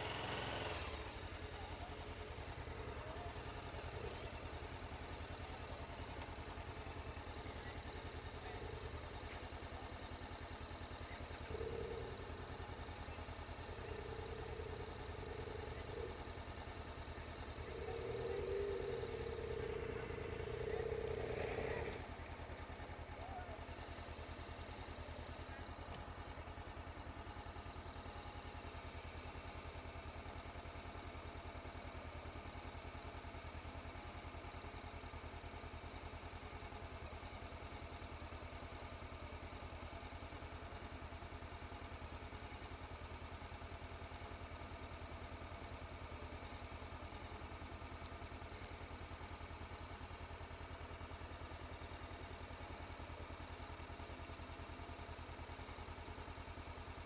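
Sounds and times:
motorcycle engine idling: 0.0 - 57.0.

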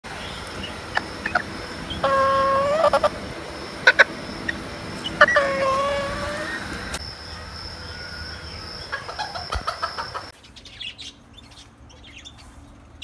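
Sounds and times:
rooster crowing: 1.0 - 7.0.

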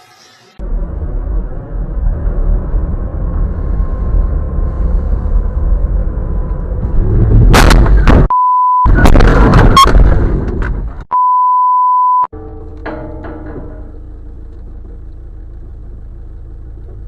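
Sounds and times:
low rumble: 0.6 - 11.0, 12.3 - 17.0
censor bleep: 8.3 - 9.1, 11.1 - 12.3.

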